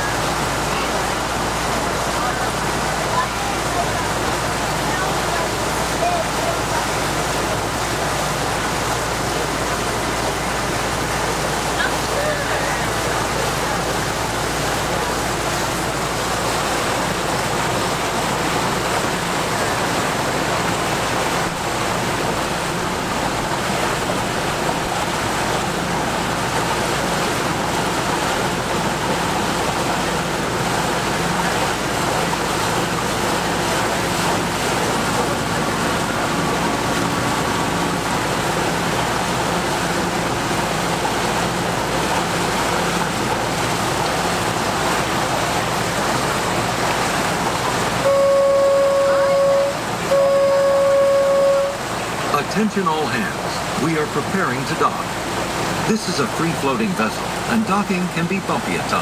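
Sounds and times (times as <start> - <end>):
boat engine hum: 0.0 - 59.0
water rushing along a hull: 0.0 - 59.0.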